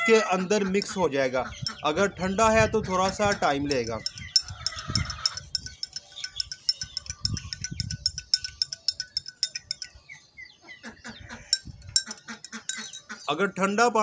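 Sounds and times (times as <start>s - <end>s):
spoon clinking against glass: 2.8s - 10.0s, 11.5s - 13.2s.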